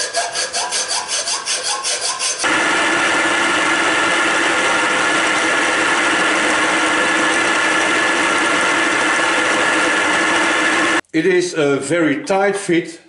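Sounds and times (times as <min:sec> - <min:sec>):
milling machine cutting metal whine: 0:02.4 - 0:11.0.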